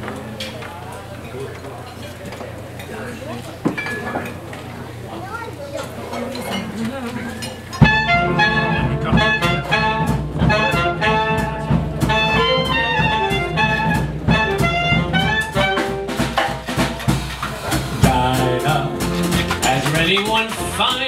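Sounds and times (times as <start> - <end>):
hot jazz band playing: 6.2 - 21.0
saxophones and clarinet melody: 7.8 - 17.0, 17.9 - 20.8.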